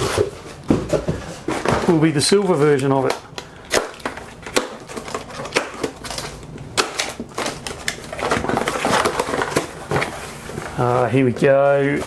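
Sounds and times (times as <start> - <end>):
packing tape snapping: 3.0 - 10.1
cardboard flaps rustling: 7.0 - 12.0.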